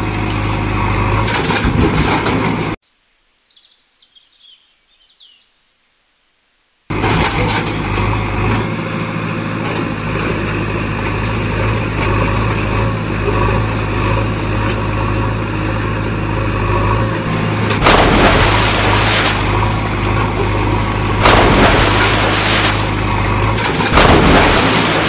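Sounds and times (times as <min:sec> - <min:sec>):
engine humming: 0:00.0 - 0:02.8, 0:06.9 - 0:25.0
sudden rush of noise: 0:17.2 - 0:19.8.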